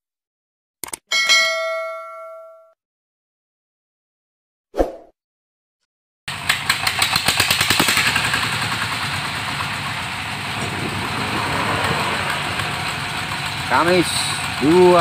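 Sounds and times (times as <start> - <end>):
diesel engine running: 6.3 - 15.0.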